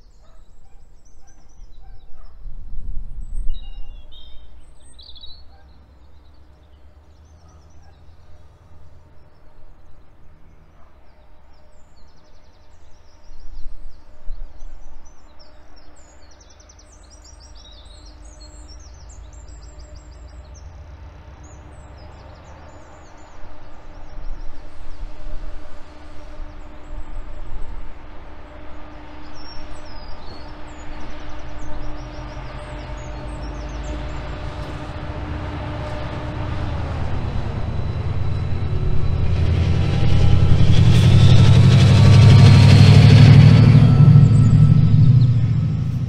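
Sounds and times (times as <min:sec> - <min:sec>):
diesel locomotive rumbling: 0:15.5 - 0:46.0
birds chirping: 0:28.4 - 0:46.0.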